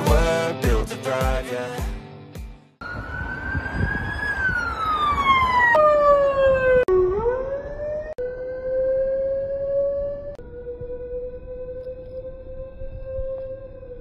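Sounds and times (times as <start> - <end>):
siren wailing: 2.8 - 14.0.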